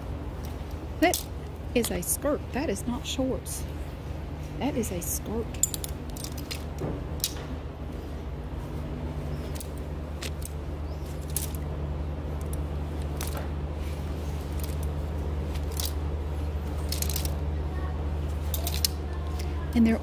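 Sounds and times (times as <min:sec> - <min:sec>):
steady low hum: 0:00.0 - 0:20.0
plastic hangers clacking on metal rack: 0:00.4 - 0:02.2, 0:05.1 - 0:07.4, 0:09.4 - 0:11.6, 0:12.4 - 0:13.5, 0:14.4 - 0:17.4, 0:18.4 - 0:20.0.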